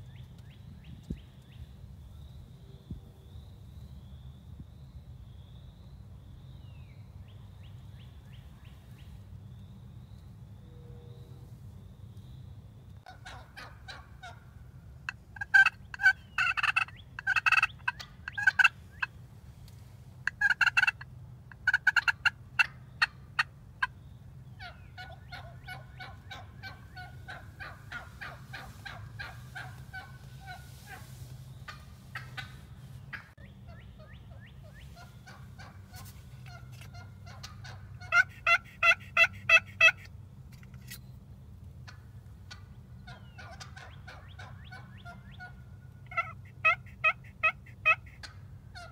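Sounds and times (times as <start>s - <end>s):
turkeys gobbling and calling: 13.0s - 19.2s, 20.2s - 40.9s, 41.8s - 48.9s.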